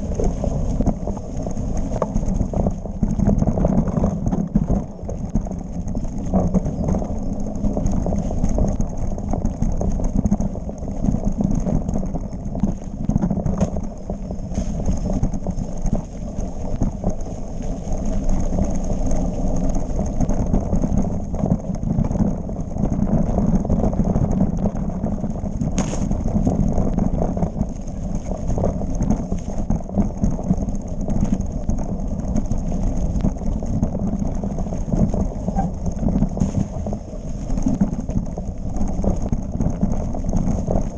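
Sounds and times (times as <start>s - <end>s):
tyre noise on dirt: 0.0s - 12.0s, 12.6s - 22.3s, 25.5s - 40.9s
bike rattling over bumpy ground: 0.0s - 40.9s.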